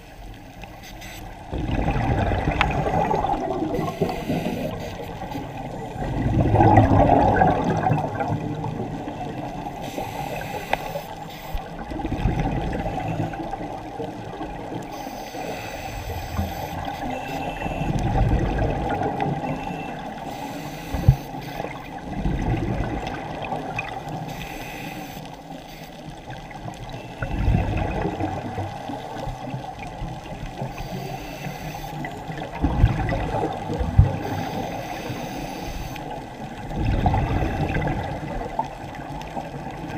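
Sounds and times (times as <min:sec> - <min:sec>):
underwater exhaust bubbles: 0:00.0 - 0:39.9
regulator hiss: 0:03.8 - 0:06.0, 0:09.6 - 0:11.8, 0:14.9 - 0:18.0, 0:19.7 - 0:21.9, 0:24.2 - 0:26.1, 0:30.7 - 0:32.1, 0:34.2 - 0:36.1.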